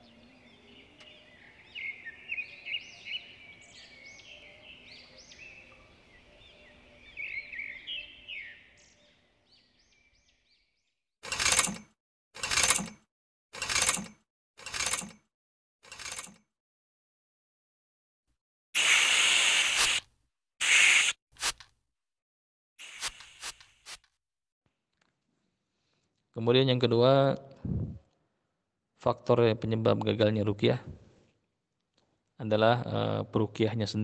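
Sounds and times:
faint chirping birdsong: 0.0 - 11.0.

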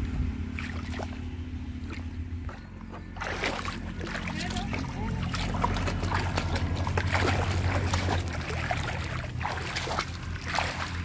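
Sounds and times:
low motor-like hum: 0.0 - 11.0
muddy water splashing: 0.0 - 11.0.

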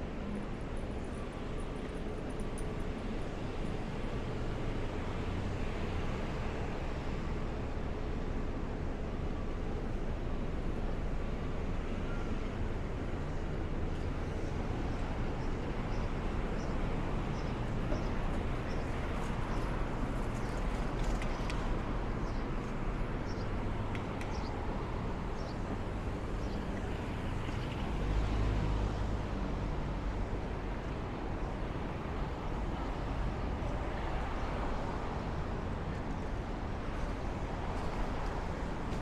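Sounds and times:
passing cars hum: 16.2 - 39.0.

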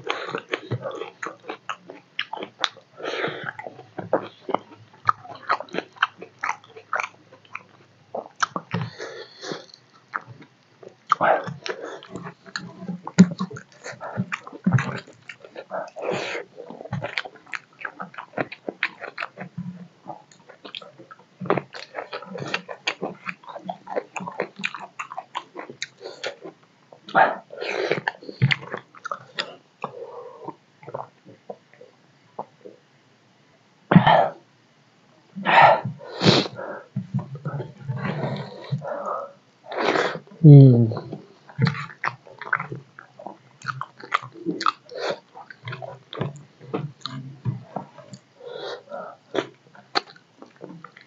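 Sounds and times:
person chewing food: 0.0 - 31.8, 35.6 - 51.0.

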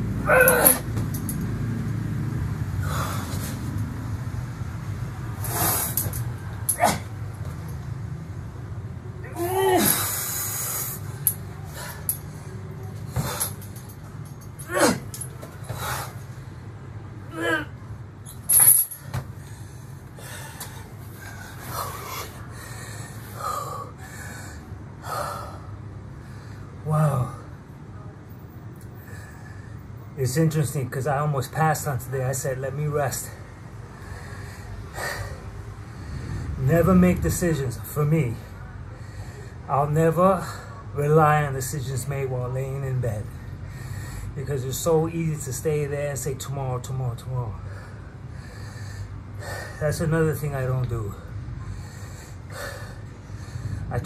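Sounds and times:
steady low hum: 0.0 - 54.0
steel chain jangling: 0.4 - 1.6, 5.4 - 7.0, 11.1 - 16.1, 18.2 - 19.2
man breathing hard: 2.7 - 3.8, 9.8 - 14.4, 15.0 - 16.7, 19.1 - 26.8, 28.9 - 30.0, 33.4 - 36.6, 38.5 - 39.7, 43.4 - 44.4, 47.6 - 49.8, 51.2 - 54.0
heavy exhales: 2.8 - 3.7, 51.6 - 53.9.

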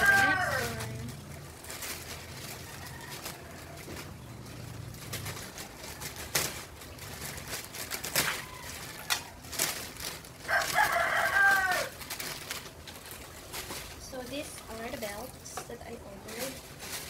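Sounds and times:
rooster crowing: 0.0 - 0.9, 2.6 - 3.9, 8.2 - 9.4, 10.4 - 12.0
plastic mailer bag crinkling: 0.0 - 17.0.

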